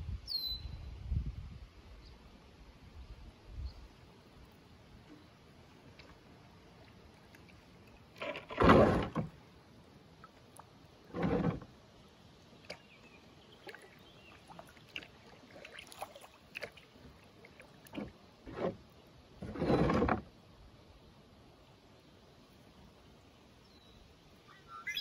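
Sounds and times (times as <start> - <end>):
paddle splashing in water: 5.1 - 9.4, 10.1 - 11.8, 12.6 - 20.3.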